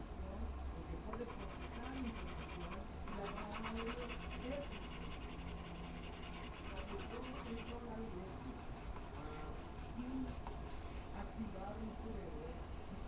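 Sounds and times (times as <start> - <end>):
pencil scratching on paper: 1.2 - 11.1.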